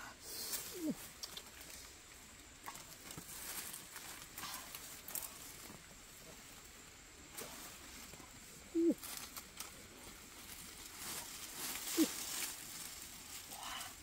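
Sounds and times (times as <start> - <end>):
leaves and twigs rustling: 0.0 - 14.0
short low animal calls: 8.7 - 9.0.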